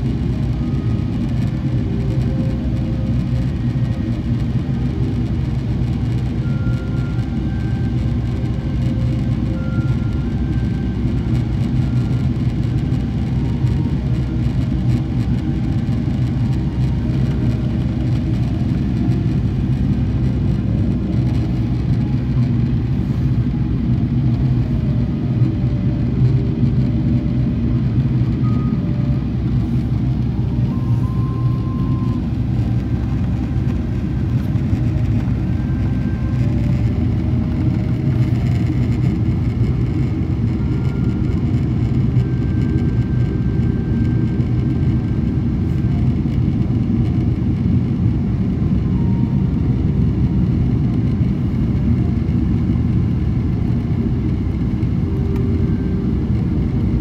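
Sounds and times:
airliner cabin engine drone: 0.0 - 57.0
airflow noise: 15.8 - 57.0.

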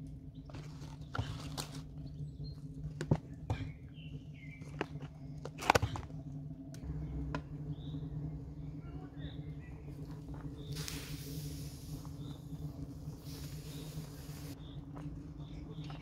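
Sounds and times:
steady low hum: 0.0 - 16.0
faint bird chirps: 6.8 - 16.0.

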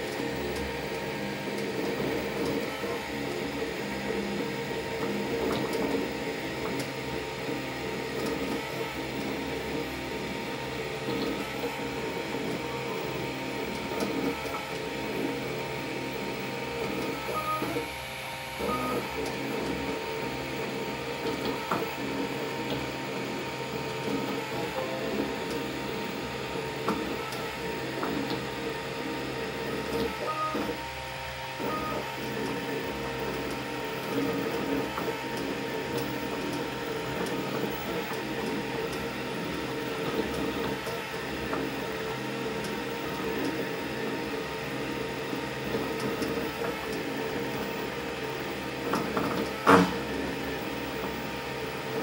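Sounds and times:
cooling fan humming: 0.0 - 52.0
stepper motors whining: 18.6 - 52.0.

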